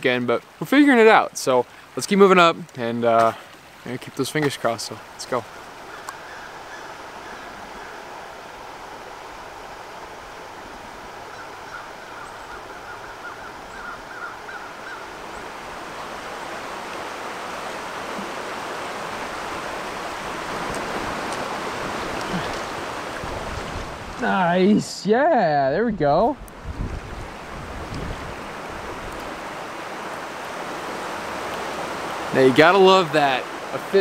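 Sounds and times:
creek water rushing: 0.0s - 34.0s
faint bird calls: 5.5s - 8.8s, 10.6s - 16.3s.

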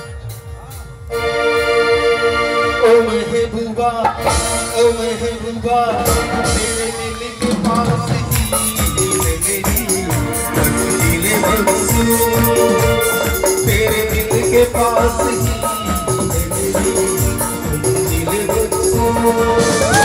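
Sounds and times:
electronic keyboard chords: 0.0s - 3.5s
drums: 0.0s - 20.0s
man singing into a microphone: 1.8s - 20.0s.

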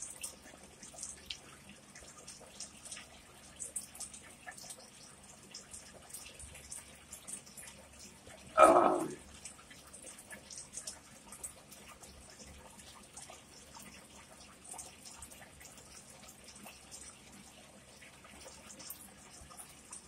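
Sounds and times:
loud vocal sound: 8.6s - 9.2s.

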